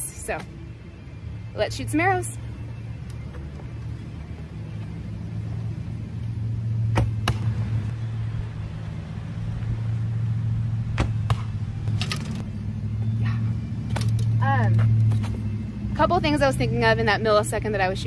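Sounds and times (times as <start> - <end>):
steady low hum: 0.0 - 17.9
arrow striking target: 6.9 - 7.5, 10.9 - 12.4.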